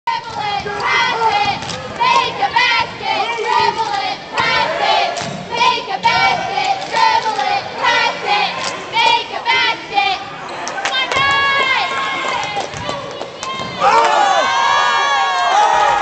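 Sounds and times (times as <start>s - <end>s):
spectators shouting and cheering: 0.1s - 16.0s.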